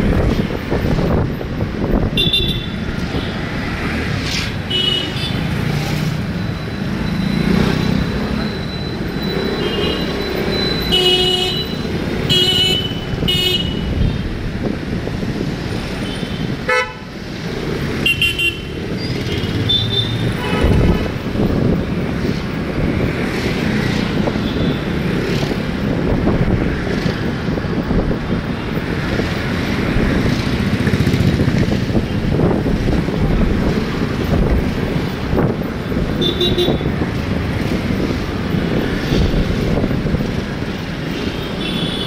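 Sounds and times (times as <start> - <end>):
traffic engine rumble: 0.0 - 42.0
vehicle horns honking: 2.2 - 2.8, 10.8 - 13.9, 16.0 - 17.1, 18.0 - 21.1, 36.2 - 36.9, 41.6 - 42.0.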